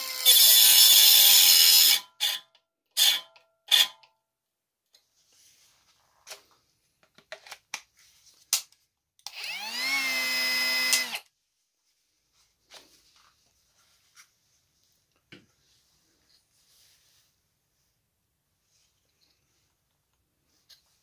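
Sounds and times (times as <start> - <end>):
angle grinder motor whining: 9.3 - 11.2.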